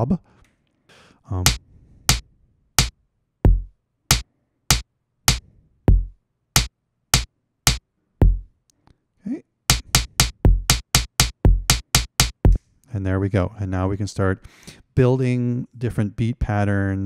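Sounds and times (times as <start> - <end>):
electronic snare hits: 3.5 - 8.4, 9.7 - 12.6
electronic kick drum: 3.5 - 8.5, 9.7 - 12.6.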